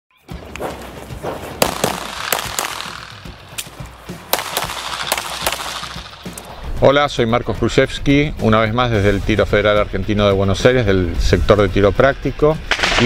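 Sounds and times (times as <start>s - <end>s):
pistol shots: 1.2s - 6.6s.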